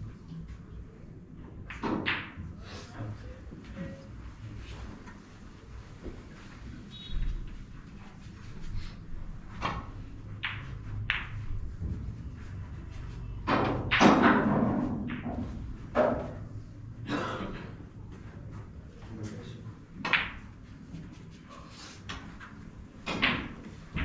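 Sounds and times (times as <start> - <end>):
snooker balls colliding: 1.6 - 2.5, 9.6 - 11.9, 13.3 - 16.5, 20.0 - 20.9, 22.1 - 24.0
cue striking ball: 9.6 - 11.5, 13.5 - 16.4, 20.0 - 20.4, 23.0 - 23.8.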